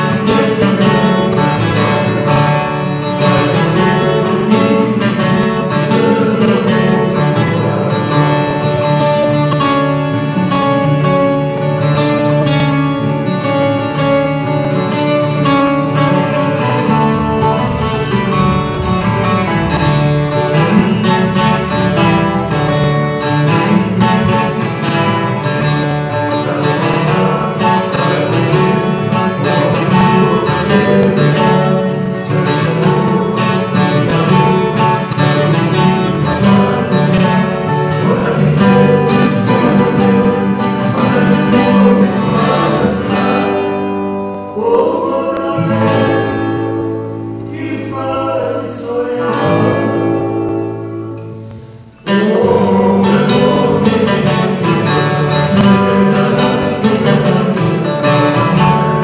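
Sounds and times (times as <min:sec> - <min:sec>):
plucked string instrument: 0:00.0 - 0:59.0.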